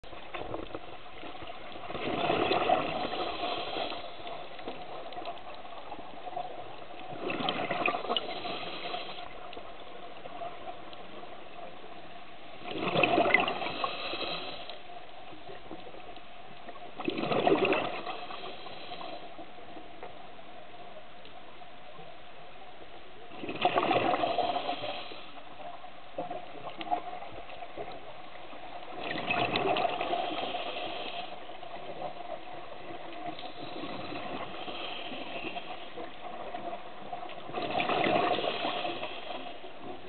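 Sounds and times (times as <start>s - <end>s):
faint steady hum: 0.0s - 40.0s
exhaled breath bubbling underwater: 1.9s - 4.8s, 7.1s - 9.5s, 12.6s - 14.8s, 17.0s - 19.3s, 23.4s - 25.4s, 37.5s - 39.7s.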